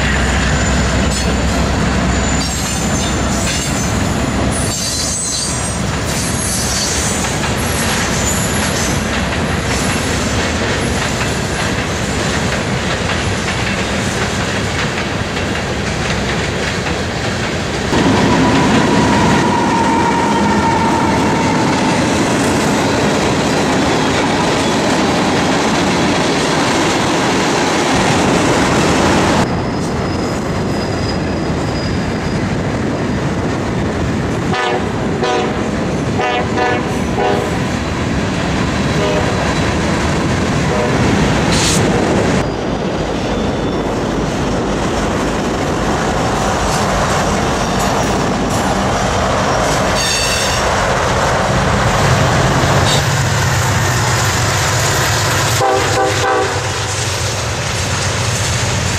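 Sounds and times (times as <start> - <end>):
train wheel squeals: 0.0 - 12.2, 18.2 - 22.6, 29.4 - 33.3, 41.5 - 44.0, 49.5 - 50.7
freight train rumbling past: 0.0 - 58.9.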